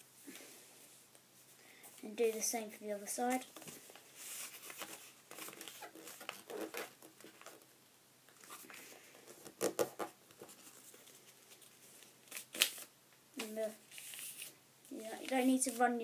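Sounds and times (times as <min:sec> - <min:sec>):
paper rustling and sliding: 0:03.3 - 0:07.6, 0:13.9 - 0:14.6
paper crinkles: 0:03.6 - 0:07.7.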